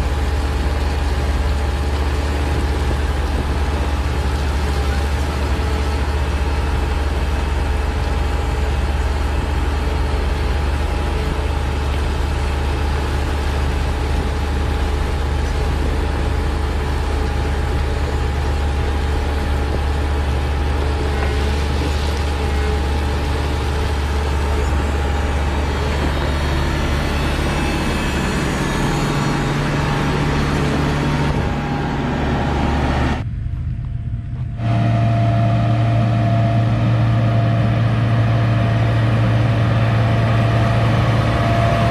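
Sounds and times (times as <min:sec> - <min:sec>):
grader diesel engine drone: 0:00.0 - 0:41.9
high whine: 0:00.0 - 0:41.9
blade dragging gravel: 0:20.0 - 0:31.8.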